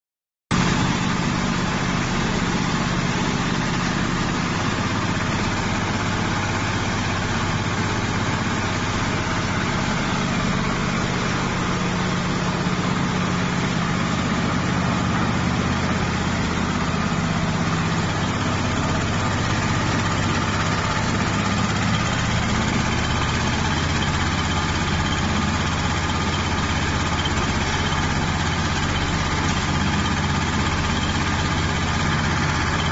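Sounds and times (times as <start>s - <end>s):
concrete mixer diesel engine running: 0.5s - 32.9s.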